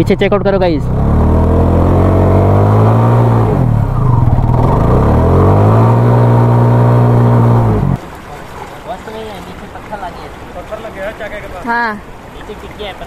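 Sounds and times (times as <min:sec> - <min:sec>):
motorcycle engine revving: 0:00.7 - 0:08.0
wheel churning water: 0:04.3 - 0:13.0.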